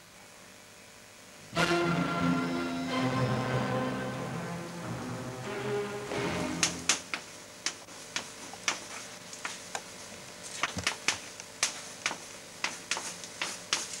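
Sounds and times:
chalk writing on blackboard: 12.1s - 14.0s.

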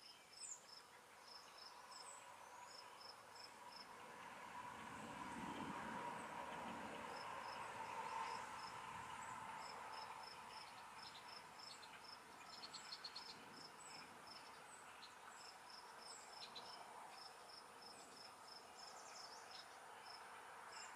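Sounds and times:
insect chirping: 7.1s - 20.9s.

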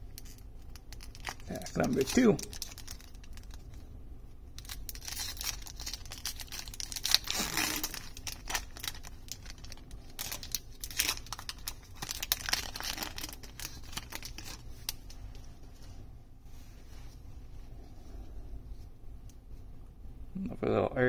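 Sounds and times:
foil wrapper crinkling and tearing: 0.0s - 3.8s, 4.5s - 15.4s.

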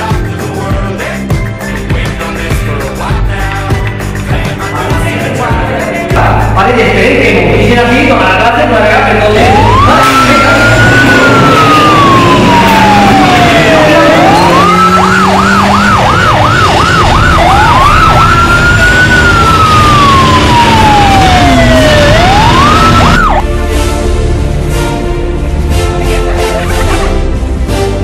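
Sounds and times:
siren wailing and yelping: 9.3s - 23.4s.

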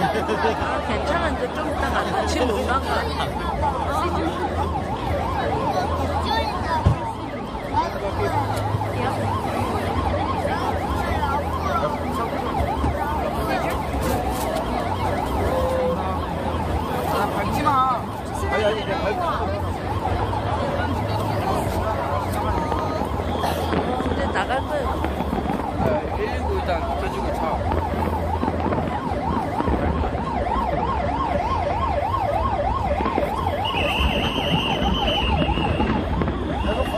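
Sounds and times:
ambulance siren yelping: 0.0s - 36.9s.

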